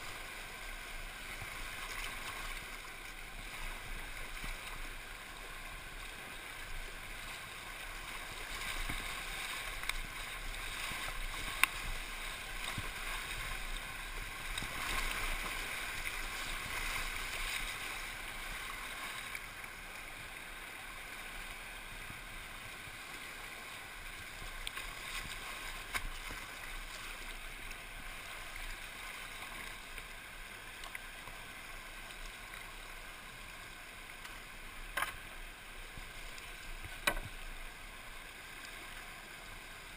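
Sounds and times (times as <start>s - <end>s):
river water rushing: 0.0s - 39.9s.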